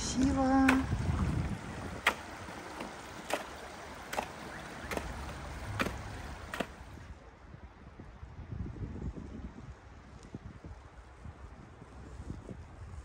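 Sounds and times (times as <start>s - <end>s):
wind rumble on microphone: 0.0s - 13.0s
footsteps crunching on snow: 2.1s - 7.0s.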